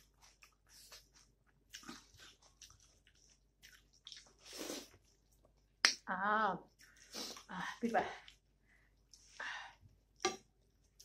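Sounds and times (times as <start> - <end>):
close-up chewing: 0.0 - 5.8
wet mouth clicks and smacks: 5.8 - 6.0.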